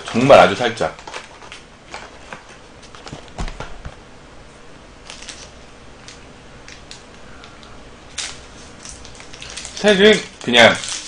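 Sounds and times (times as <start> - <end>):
plastic wrapper tearing and crinkling: 0.0 - 2.1, 8.1 - 11.0.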